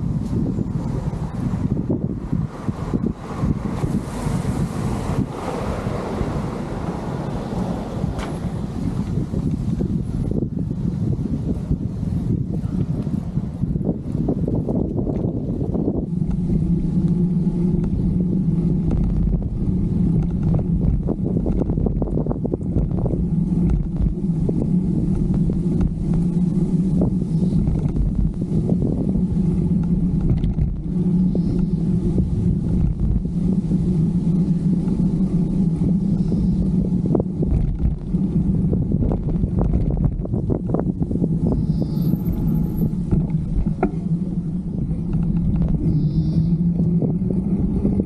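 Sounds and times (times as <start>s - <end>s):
steady low drone: 0.0s - 48.0s
wind buffeting microphone: 0.0s - 48.0s
bicycle knocks and rattles: 8.0s - 11.8s, 13.8s - 33.5s, 36.8s - 41.4s, 42.3s - 45.9s.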